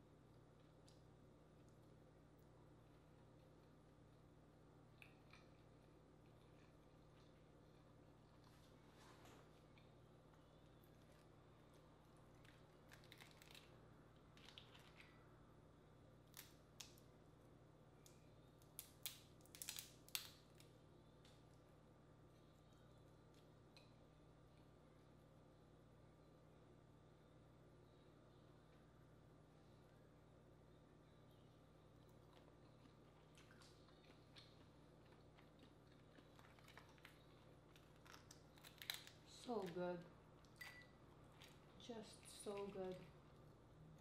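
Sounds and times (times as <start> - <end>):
low steady hum: 0.0 - 44.0
crawfish shell cracking: 12.4 - 13.7, 18.0 - 20.7, 35.5 - 39.7.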